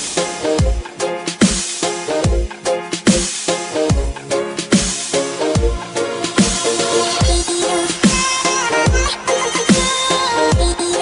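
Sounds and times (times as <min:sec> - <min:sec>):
held synth chords: 0:00.0 - 0:09.7
electronic dance music: 0:00.0 - 0:11.0
deep pitch-dropping kick drum: 0:00.6 - 0:01.6, 0:02.2 - 0:03.3, 0:03.9 - 0:05.0, 0:05.6 - 0:08.3, 0:08.9 - 0:10.8.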